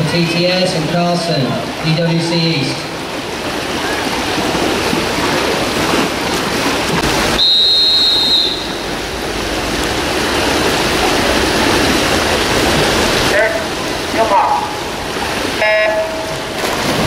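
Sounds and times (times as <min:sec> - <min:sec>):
rushing poolside noise: 0:00.0 - 0:17.0
referee's whistle blowing: 0:07.4 - 0:08.8.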